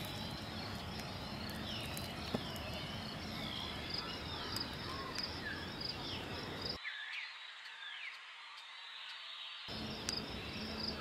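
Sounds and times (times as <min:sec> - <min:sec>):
insects trilling: 0:00.0 - 0:06.8, 0:09.2 - 0:11.0.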